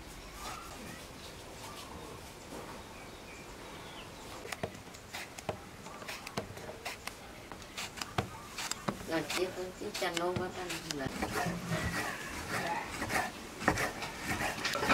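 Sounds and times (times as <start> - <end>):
faint bird chirps: 0.0 - 5.2
cleaver chopping on bamboo tray: 7.8 - 14.9.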